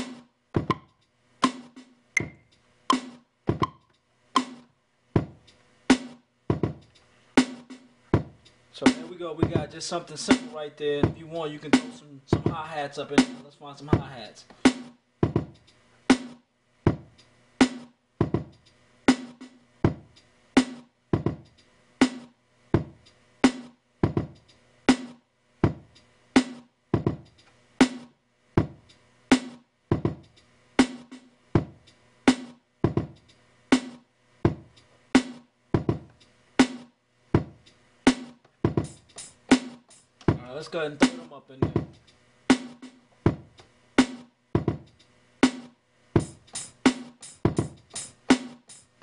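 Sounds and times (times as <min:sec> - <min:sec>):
boom bap drum loop: 0:00.0 - 0:49.0.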